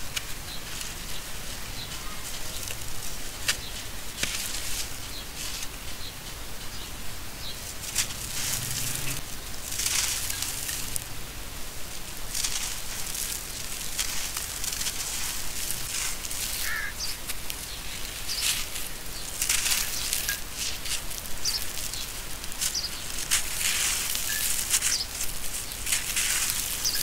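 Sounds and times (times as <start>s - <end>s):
cement lumps crunching and crumbling: 7.7s - 11.1s, 11.9s - 27.0s
gritty crumbs trickling: 7.7s - 27.0s
sand pouring: 7.8s - 27.0s
chunks snapping: 12.3s - 27.0s.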